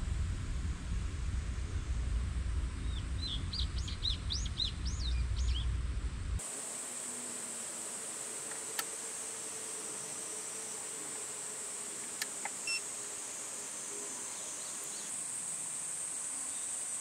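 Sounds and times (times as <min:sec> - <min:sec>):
low outdoor rumble: 0:00.0 - 0:06.4
faint hum: 0:00.0 - 0:17.0
songbird singing: 0:02.8 - 0:05.7, 0:06.6 - 0:17.0
steady high hiss: 0:06.4 - 0:17.0.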